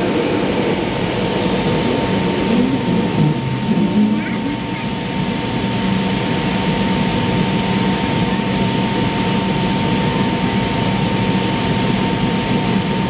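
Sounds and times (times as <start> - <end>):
jet engines roaring: 0.0 - 13.0
thin whine: 0.0 - 13.0.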